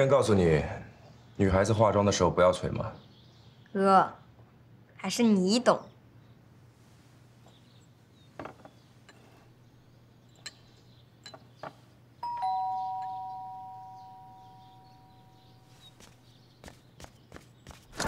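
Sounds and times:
two-tone doorbell ringing: 12.2 - 15.4.

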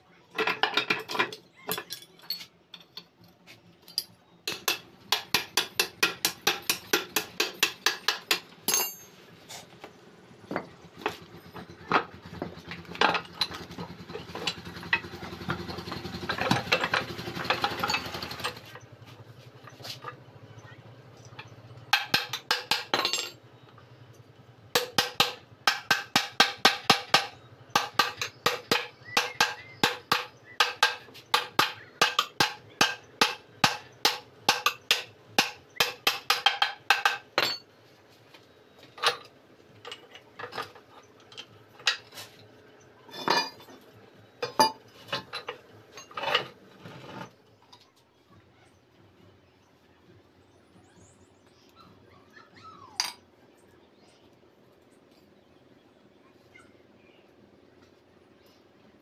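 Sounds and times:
hammer striking steel: 24.8 - 37.6.

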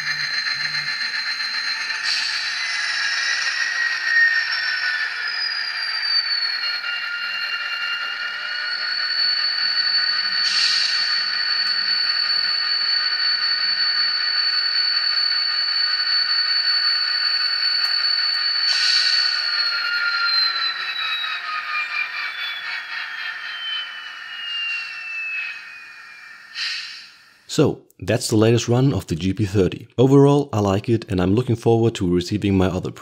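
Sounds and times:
high-pitched diesel engine drone: 0.0 - 27.7
short burst of hiss: 26.5 - 27.2.

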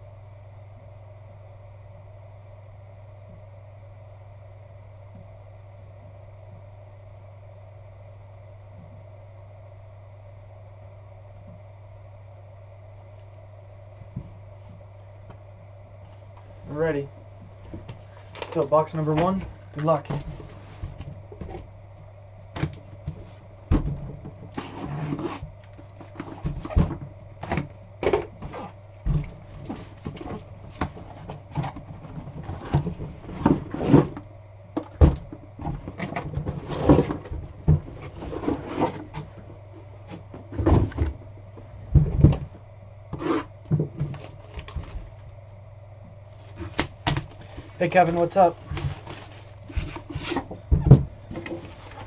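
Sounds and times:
low hum: 0.0 - 52.0
scrapes rustles and knocks: 19.2 - 21.6, 28.4 - 34.2, 35.6 - 39.5, 46.3 - 52.0.

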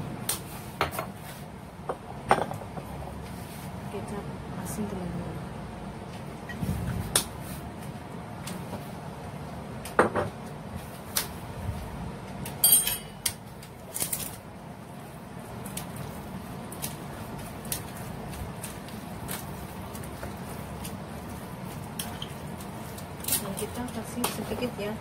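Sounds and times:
metal tongs clattering: 12.6 - 13.3.

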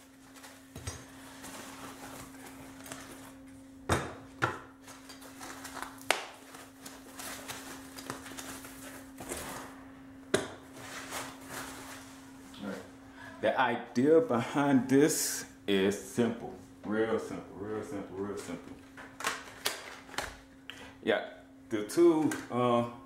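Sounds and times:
steady low hum: 0.0 - 23.0
packing wrap rustling: 4.8 - 9.7, 10.8 - 12.2.

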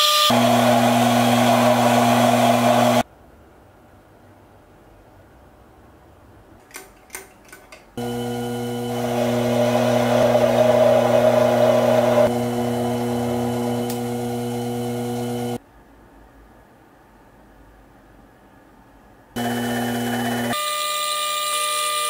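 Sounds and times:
metal lathe humming: 0.1 - 3.0, 8.0 - 15.6, 19.4 - 21.0
small metal clicks: 6.6 - 8.0.

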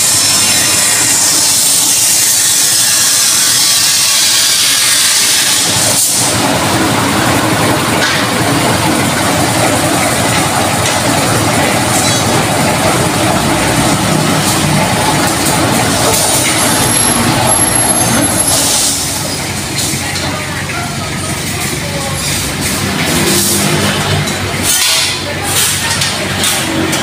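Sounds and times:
paint mixing machine shaking: 5.7 - 18.8.

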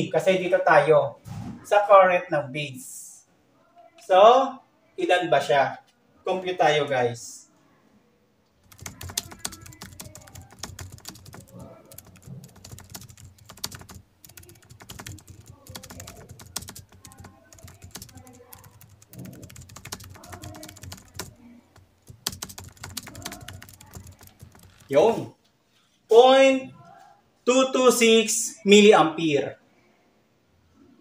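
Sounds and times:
calculator keys clicking: 8.7 - 24.9.

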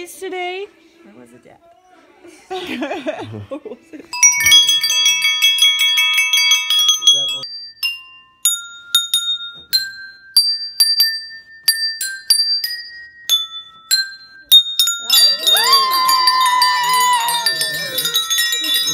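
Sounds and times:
metal tube chimes ringing: 4.1 - 18.9.

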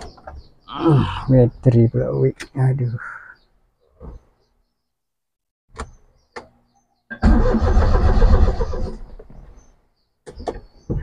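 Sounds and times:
car engine cranking: 7.2 - 9.1.

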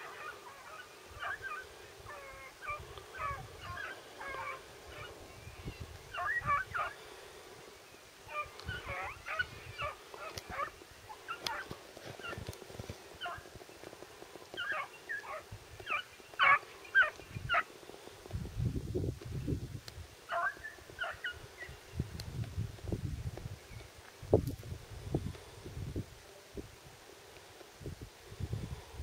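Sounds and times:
hounds yelping and baying: 0.0 - 5.2, 6.1 - 7.0, 8.3 - 12.5, 13.2 - 13.5, 14.5 - 17.7, 20.3 - 21.4.

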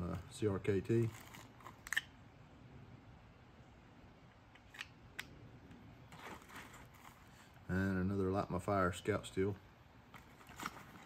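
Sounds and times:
faint plastic bag rustle: 0.9 - 2.0, 6.1 - 7.7, 10.0 - 11.0.

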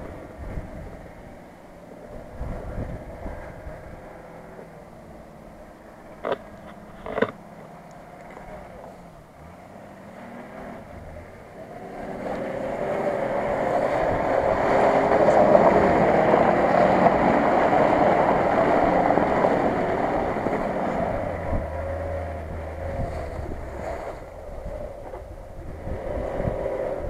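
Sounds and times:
off-road vehicle engine driving: 0.0 - 27.0.

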